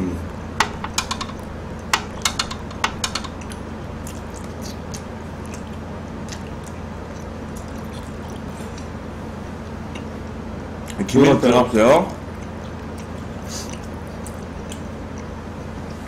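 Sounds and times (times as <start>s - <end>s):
steady low hum: 0.0s - 16.0s
chopsticks clicking against dishes: 0.6s - 5.7s.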